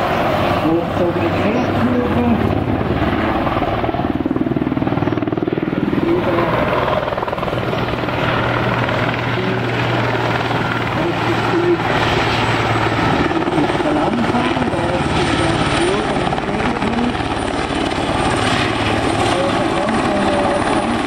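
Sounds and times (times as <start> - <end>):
helicopter rotor beating: 0.0 - 21.0.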